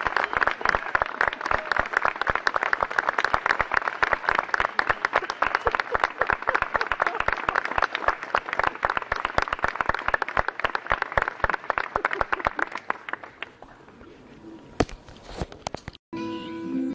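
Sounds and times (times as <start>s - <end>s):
audience applauding: 0.0s - 13.6s.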